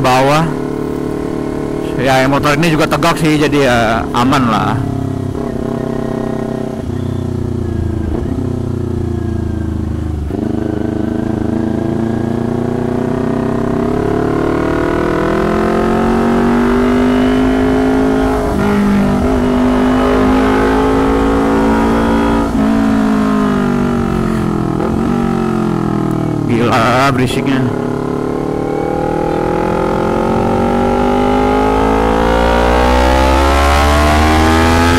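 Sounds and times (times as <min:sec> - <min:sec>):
motorcycle engine revving: 0:00.0 - 0:34.9.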